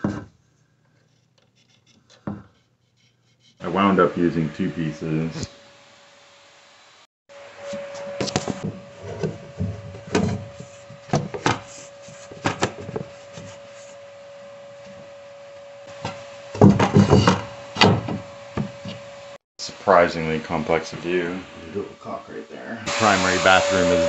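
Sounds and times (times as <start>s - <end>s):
rubbing scrapes: 0.9s - 3.8s.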